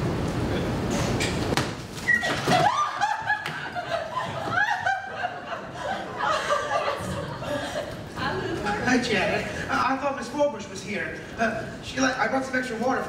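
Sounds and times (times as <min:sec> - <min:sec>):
young women laughing: 0:02.1 - 0:08.6.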